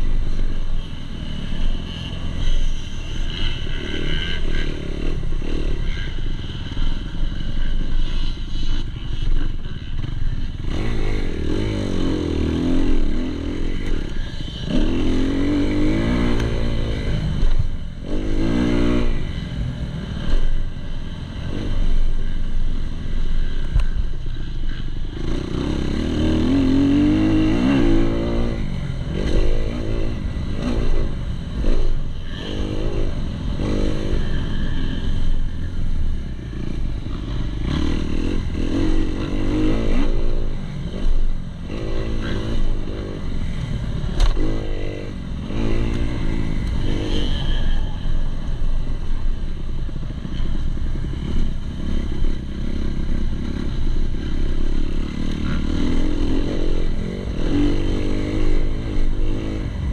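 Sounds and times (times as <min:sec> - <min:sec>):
motorcycle engine revving: 0:00.0 - 0:59.9.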